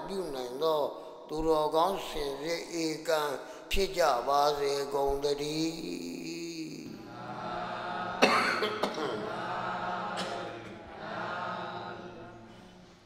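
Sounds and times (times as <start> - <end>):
man clearing throat: 8.2 - 9.3, 10.2 - 10.7
man coughing: 8.2 - 9.3.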